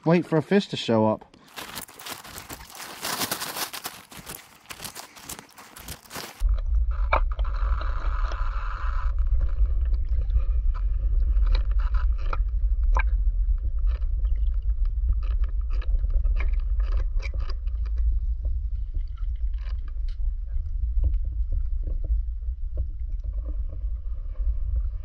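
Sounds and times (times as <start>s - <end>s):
underwater rumble: 6.4s - 25.0s.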